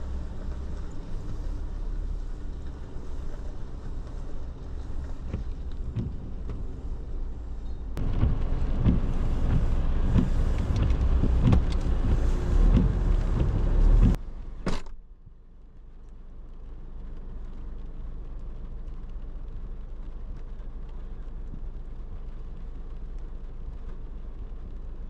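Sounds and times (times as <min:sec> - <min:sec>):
car rumbling over rough track: 0:00.0 - 0:14.4.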